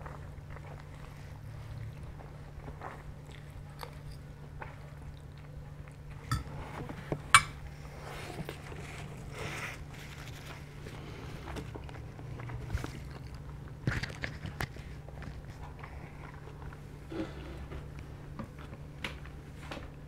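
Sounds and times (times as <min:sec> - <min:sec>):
chewing spaghetti: 0:00.0 - 0:20.0
metal fork clinking on plate: 0:06.3 - 0:06.6.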